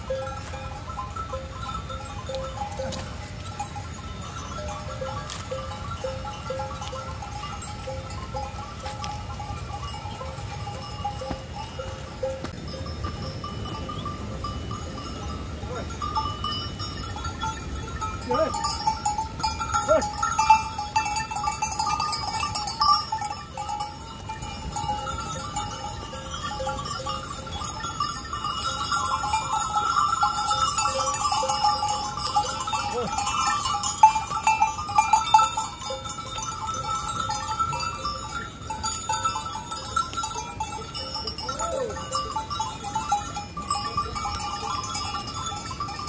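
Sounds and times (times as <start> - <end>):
goat neck bells ringing: 0.0 - 46.0.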